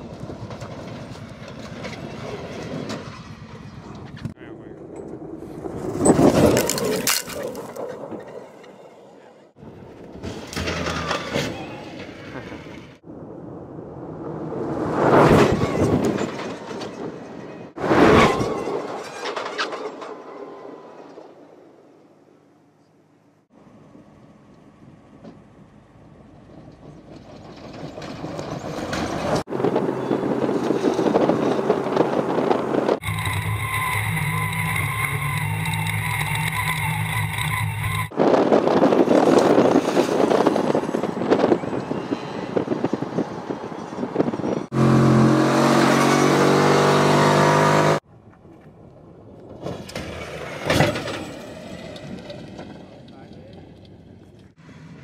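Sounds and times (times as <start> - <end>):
truck tyres crunching gravel: 5.4 - 8.3.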